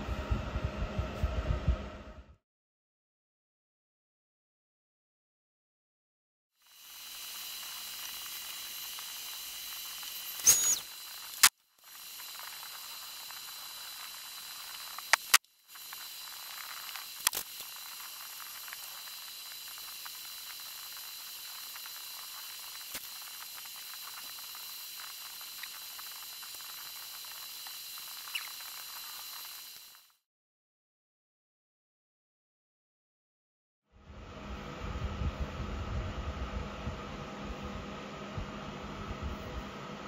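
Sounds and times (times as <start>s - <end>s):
steady hiss with high whines: 6.6s - 30.1s.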